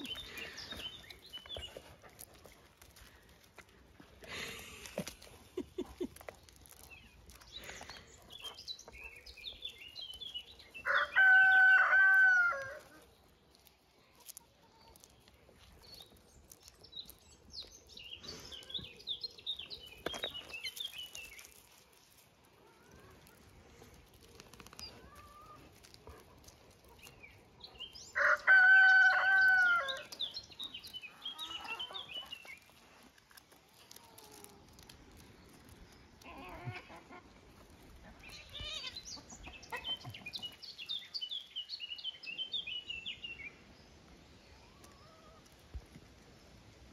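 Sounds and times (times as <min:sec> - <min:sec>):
rooster crowing: 0:10.9 - 0:12.8, 0:28.2 - 0:30.0.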